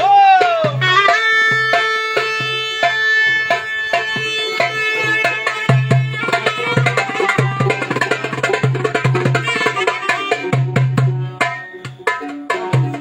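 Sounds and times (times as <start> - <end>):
fast hand drum rhythm: 0.0 - 13.0
live band dance music: 0.0 - 13.0.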